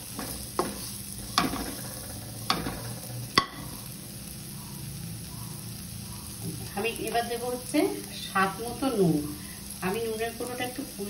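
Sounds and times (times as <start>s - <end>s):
spatula scraping and knocking pan: 0.0s - 3.8s
vegetables sizzling in oil: 0.0s - 11.0s.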